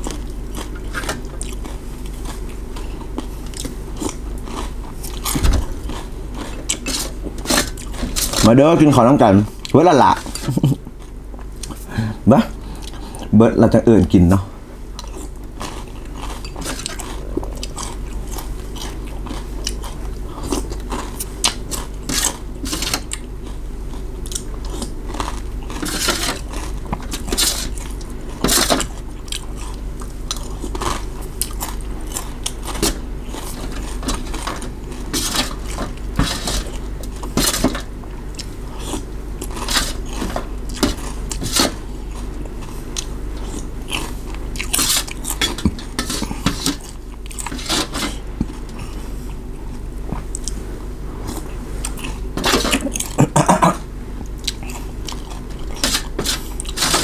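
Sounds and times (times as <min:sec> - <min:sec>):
person chewing: 0:00.0 - 0:08.4, 0:09.6 - 0:11.9, 0:12.5 - 0:13.3, 0:14.9 - 0:57.0
low hum: 0:03.8 - 0:08.4.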